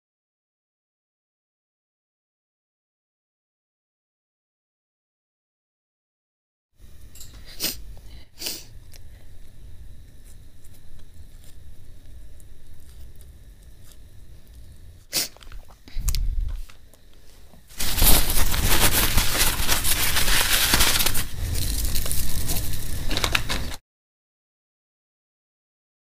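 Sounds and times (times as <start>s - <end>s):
dried chillies crackling and crunching: 8.8s - 16.9s, 17.7s - 23.8s
soft rustles: 16.6s - 23.8s.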